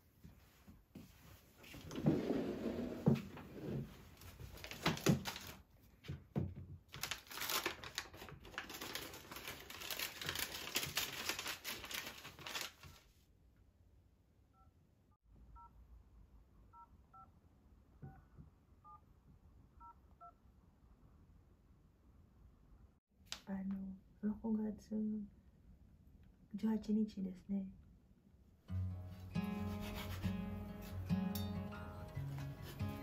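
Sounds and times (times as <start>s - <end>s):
paper rustling and crinkling: 4.1s - 6.2s, 6.9s - 13.2s.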